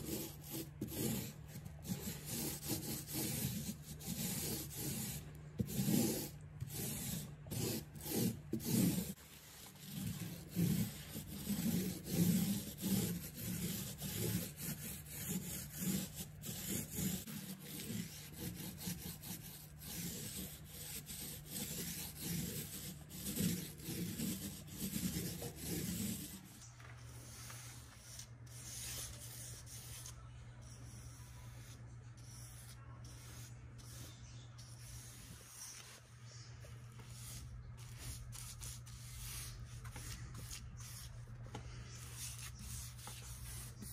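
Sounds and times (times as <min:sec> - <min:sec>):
paint roller rubbing on wall: 0:00.0 - 0:30.0
paintbrush strokes: 0:00.0 - 0:43.9.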